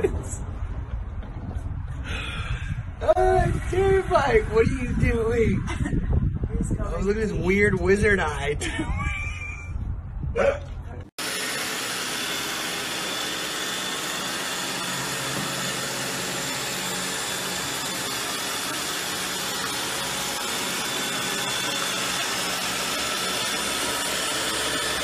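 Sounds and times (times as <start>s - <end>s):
robot vacuum cleaner whirring: 11.2s - 16.9s.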